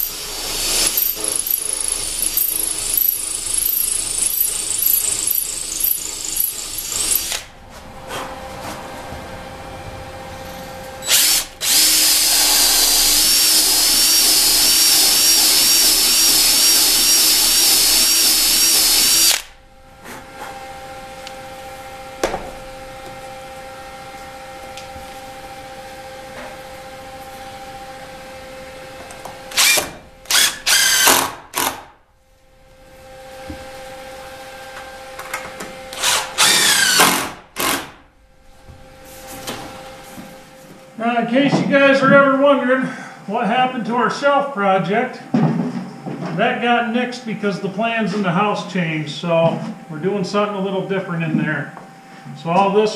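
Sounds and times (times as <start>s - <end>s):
power drill boring into wood: 0.0s - 7.5s, 11.0s - 19.5s, 29.5s - 31.9s, 35.9s - 38.0s.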